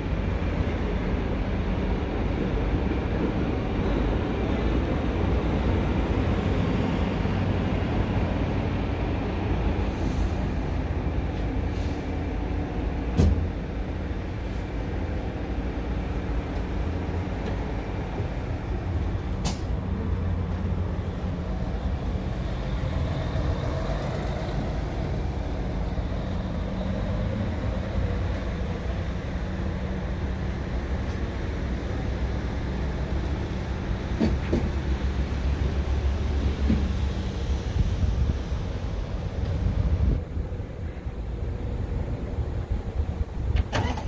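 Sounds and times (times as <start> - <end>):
diesel engine idling: 40.0 - 44.0.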